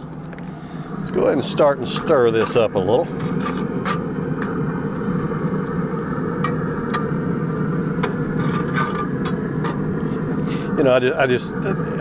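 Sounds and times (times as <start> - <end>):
steady low rumble: 0.0 - 12.0
spatula scraping skillet: 1.8 - 5.1, 8.0 - 9.9.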